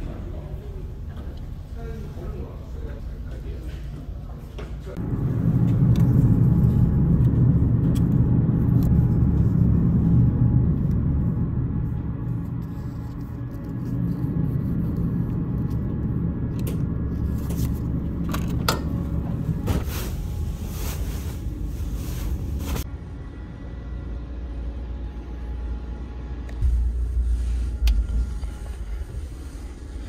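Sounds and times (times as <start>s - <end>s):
ship engines rumbling: 4.2s - 22.9s
rustling handling noise: 17.2s - 22.8s.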